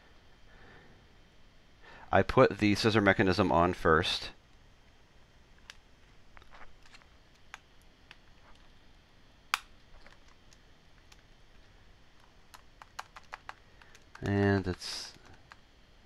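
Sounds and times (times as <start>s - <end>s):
small plastic clicks and taps: 12.2s - 15.6s.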